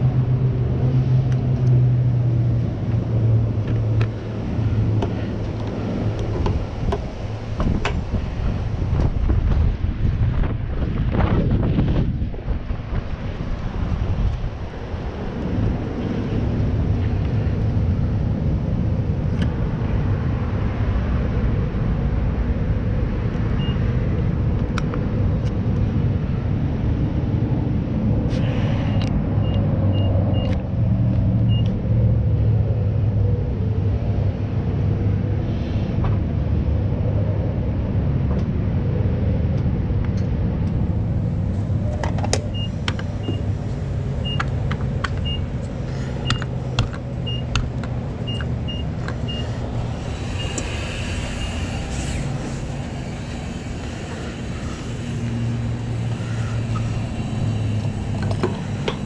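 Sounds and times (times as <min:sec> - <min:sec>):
keypad beeps: 0:47.3 - 0:47.5.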